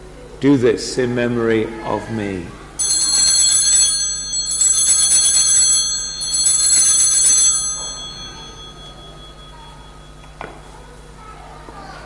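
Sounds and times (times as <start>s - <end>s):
altar bells ringing: 2.8s - 11.3s.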